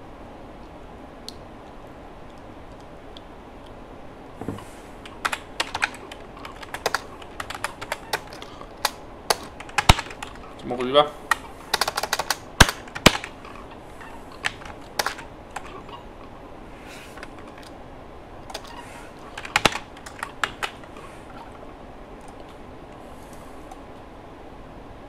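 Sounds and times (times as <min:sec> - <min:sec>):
computer keyboard typing: 0:05.0 - 0:16.0, 0:17.2 - 0:17.8, 0:18.5 - 0:21.0.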